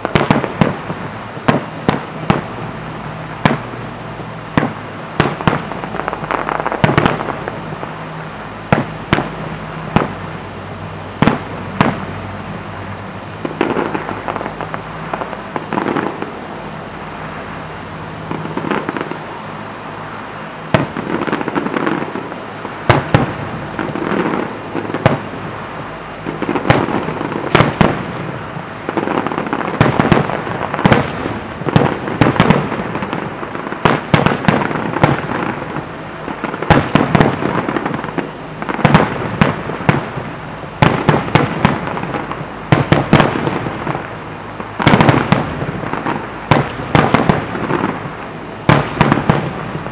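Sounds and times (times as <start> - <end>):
firework bangs: 0.0 - 49.9
fireworks crackling: 0.0 - 49.9.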